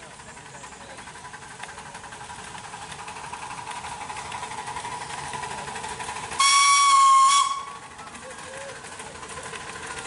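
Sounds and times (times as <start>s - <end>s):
steam locomotive exhaust beat: 0.0s - 10.0s
steam locomotive whistle: 6.3s - 8.0s.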